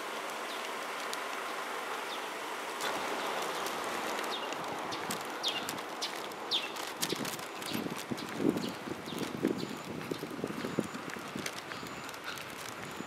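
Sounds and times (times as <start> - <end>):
outdoor hiss: 0.0 - 6.7.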